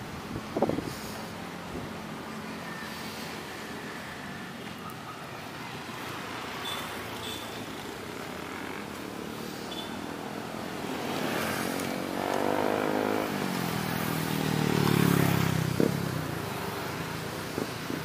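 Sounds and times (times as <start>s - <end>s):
vehicle engine passing: 10.4s - 16.8s.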